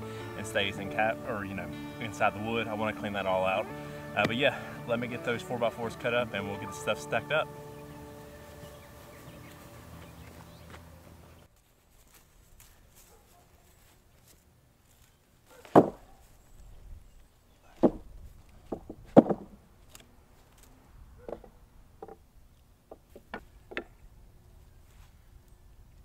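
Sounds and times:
loud wooden thuds: 0:17.8 - 0:19.6
wooden boards clunking: 0:17.8 - 0:19.6.

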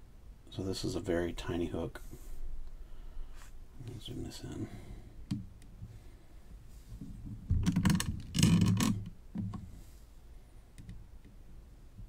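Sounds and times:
clicking and rattling: 0:07.5 - 0:09.6.

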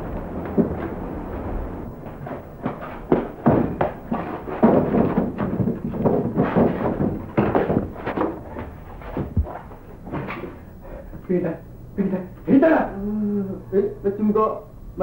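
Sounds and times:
irregular thumps and knocks: 0:00.0 - 0:01.2, 0:02.0 - 0:10.6.

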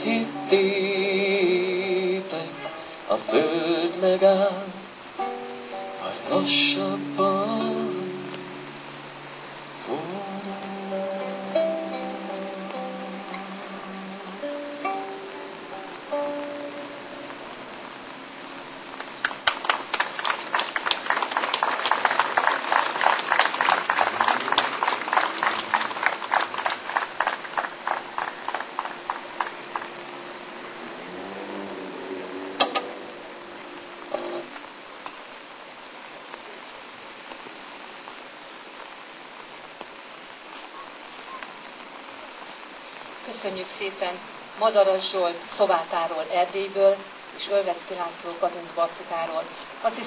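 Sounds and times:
rain falling: 0:00.0 - 0:50.0
small crowd applauding: 0:19.0 - 0:30.2.

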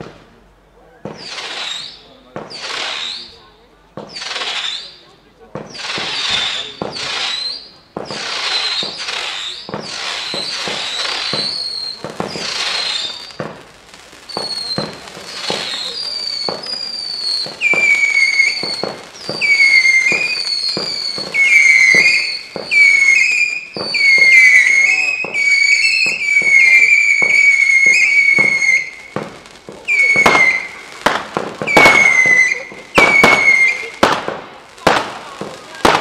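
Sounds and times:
fireworks crackling launches: 0:00.0 - 0:36.0
firework falling whistles: 0:01.0 - 0:36.0.

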